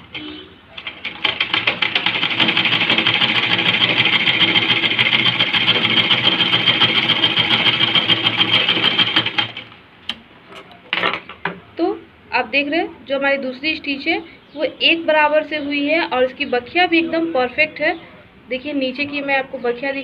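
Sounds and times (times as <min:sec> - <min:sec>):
sewing machine stitching: 0:00.0 - 0:09.7.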